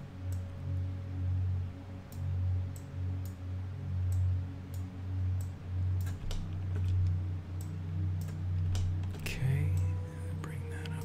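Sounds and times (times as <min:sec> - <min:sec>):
low hum: 0:00.0 - 0:11.0
computer mouse clicking: 0:04.1 - 0:09.9.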